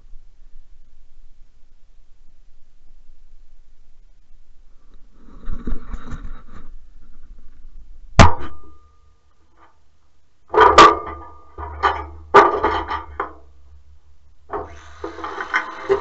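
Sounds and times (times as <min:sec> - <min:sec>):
tools and steel parts knocking: 0:10.5 - 0:13.5.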